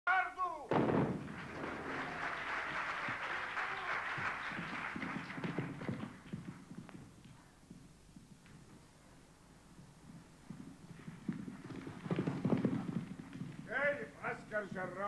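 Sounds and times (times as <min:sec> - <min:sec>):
audience applause: 0:01.1 - 0:06.7
feet running on wooden stage: 0:03.8 - 0:15.0.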